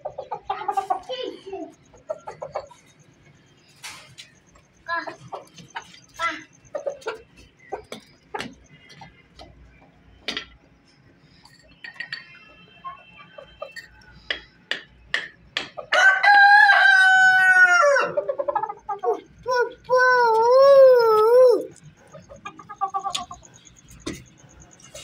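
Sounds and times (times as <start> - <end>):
chickens clucking: 0.0 - 10.0, 17.7 - 25.0
rooster crowing: 15.8 - 18.5.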